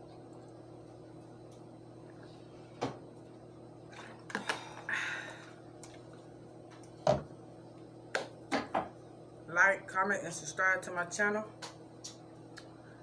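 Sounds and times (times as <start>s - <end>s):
steady low hum: 0.0s - 13.0s
bottle set down on table: 7.0s - 7.3s.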